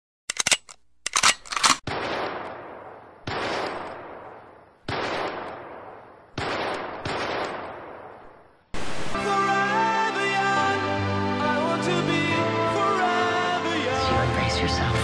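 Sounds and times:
heavy single gunshots: 1.8 - 8.2.

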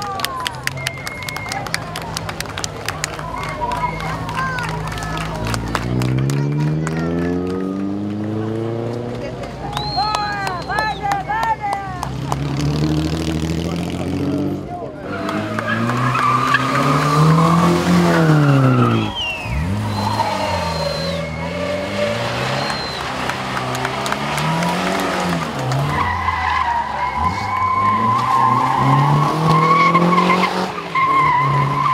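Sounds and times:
sports cars revving past: 4.8 - 9.6, 11.9 - 31.9
tyres squealing: 15.0 - 31.9.

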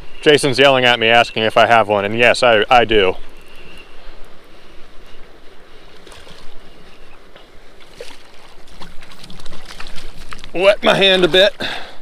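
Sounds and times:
water splashing: 5.9 - 6.6, 7.8 - 11.8.

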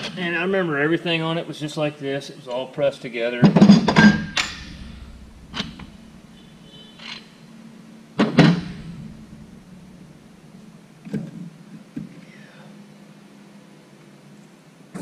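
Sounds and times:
short metallic ring: 3.9 - 7.4
low hum: 3.9 - 11.0.

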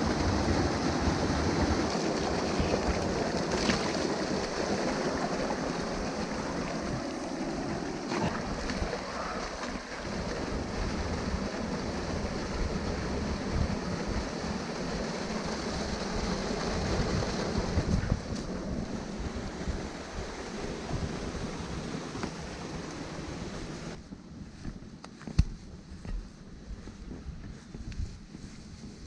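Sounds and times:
sharp water splashes: 0.0 - 7.0, 8.0 - 13.4
stream water rushing: 0.0 - 24.0.

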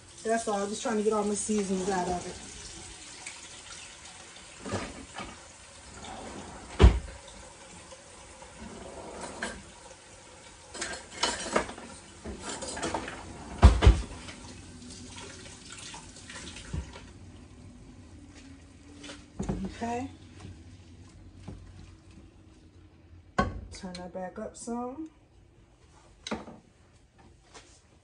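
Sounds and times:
kitchen utensils clattering: 8.6 - 9.8, 10.7 - 14.4.

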